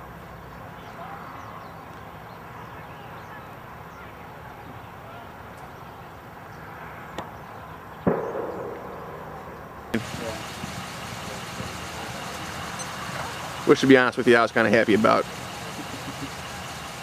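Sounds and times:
sudden loud noise: 8.1 - 10.9.

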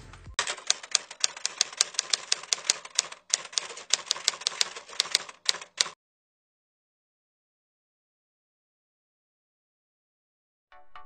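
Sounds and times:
typewriter key clicks: 0.4 - 6.0.

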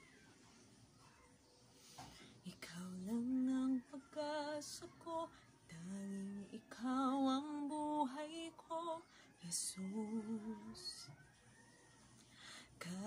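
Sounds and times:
woman singing worship song: 2.4 - 11.1, 12.6 - 13.0.

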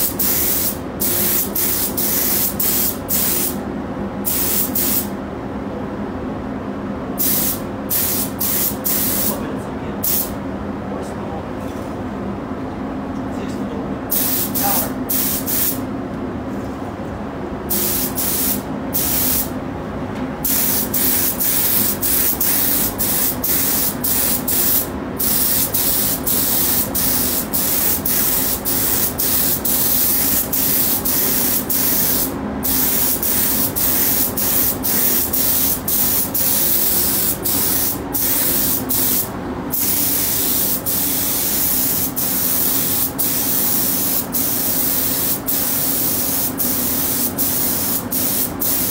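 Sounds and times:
spray gun hissing: 0.0 - 3.6, 7.2 - 9.3, 14.1 - 15.8, 17.7 - 19.5, 20.4 - 48.9
steady low hum: 0.0 - 48.9.

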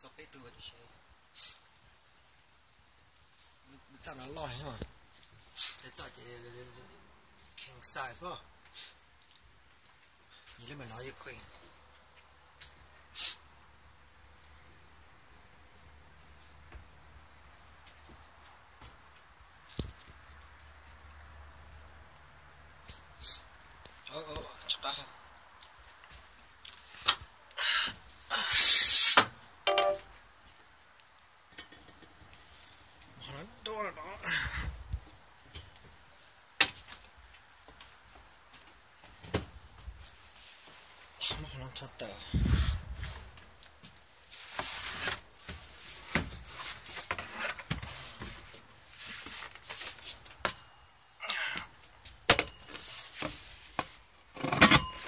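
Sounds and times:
loud scraping hiss: 1.3 - 1.7, 5.4 - 6.0, 13.1 - 13.4, 26.8 - 29.3
rustling: 42.4 - 50.5.

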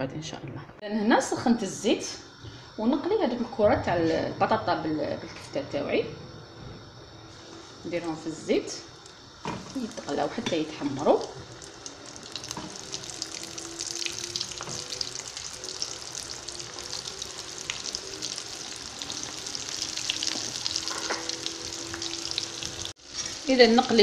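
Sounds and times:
oil sizzling in a frying pan: 6.9 - 24.0.

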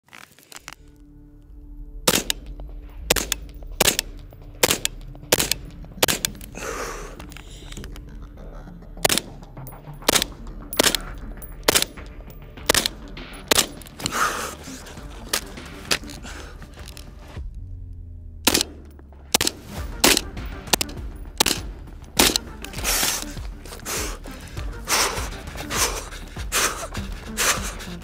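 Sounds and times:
rifle firing single shots: 2.1 - 2.5, 3.1 - 6.6, 9.0 - 9.2, 10.1 - 14.6, 18.5 - 18.8, 19.4 - 24.2.

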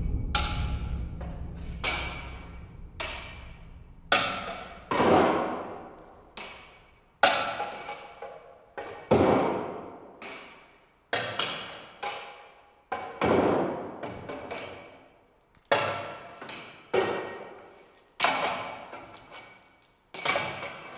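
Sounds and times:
ringing percussive hits: 0.0 - 5.9.

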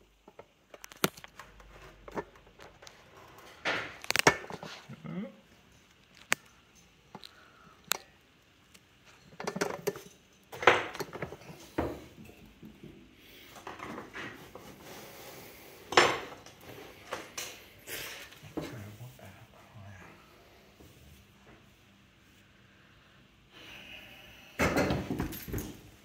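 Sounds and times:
hard objects clicking and knocking: 9.2 - 13.0.

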